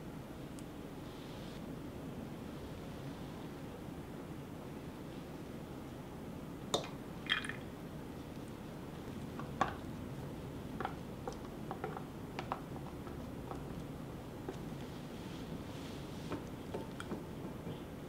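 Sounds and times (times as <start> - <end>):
liquid pouring into cup: 6.8 - 7.7
clicks and taps of containers: 9.3 - 9.9, 10.8 - 14.6.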